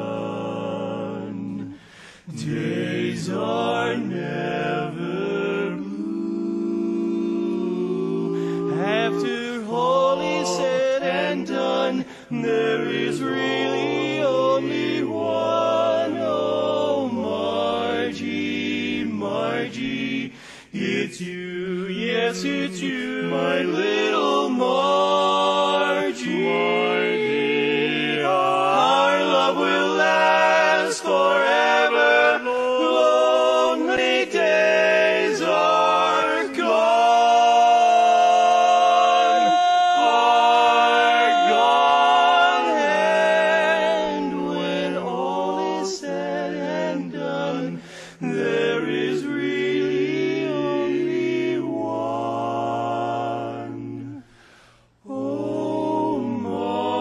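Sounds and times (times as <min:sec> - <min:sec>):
male quartet singing a cappella: 0:00.0 - 0:57.0.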